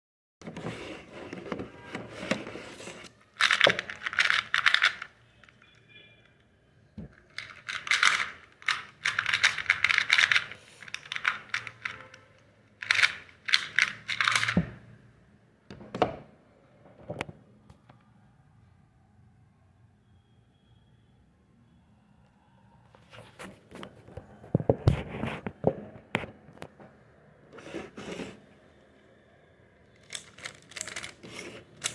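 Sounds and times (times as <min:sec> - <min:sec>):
puzzle cube clicking: 0:12.8 - 0:14.6.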